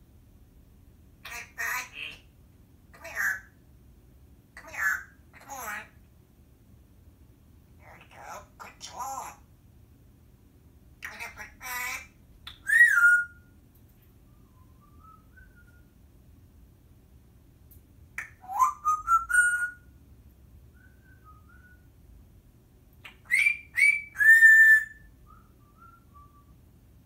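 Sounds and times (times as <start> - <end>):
parrot whistling: 11.0 - 13.5, 14.3 - 15.9, 18.2 - 19.9, 23.0 - 26.5.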